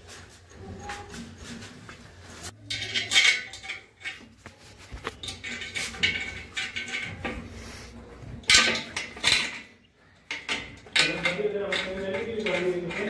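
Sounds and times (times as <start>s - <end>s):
metallic clinking and scraping: 0.0s - 13.0s.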